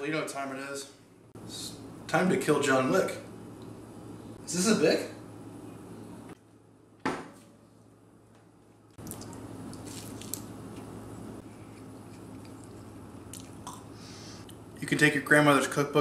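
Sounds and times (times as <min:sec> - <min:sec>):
man chewing crispy food: 0:09.0 - 0:14.6.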